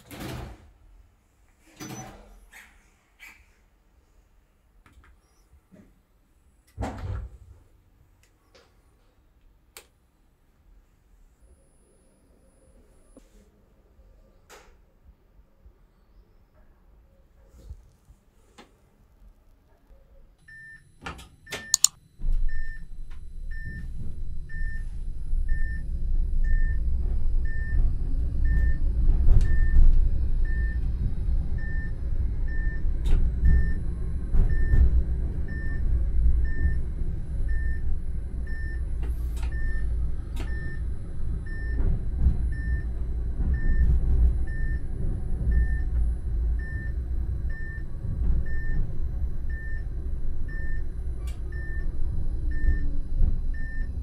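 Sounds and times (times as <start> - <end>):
short high beep: 21.7 - 21.9
tram running gear rumble: 22.3 - 54.0.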